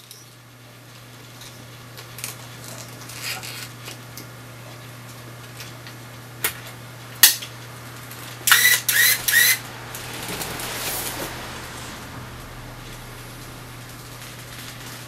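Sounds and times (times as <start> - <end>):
camera motor whirring: 8.5 - 9.6.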